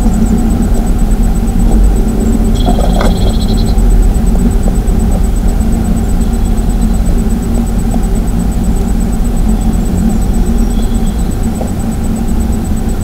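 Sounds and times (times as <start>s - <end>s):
high electronic whine: 0.0s - 13.0s
low rumbling microphone noise: 0.0s - 13.0s
bird scratching nesting material: 2.5s - 3.7s.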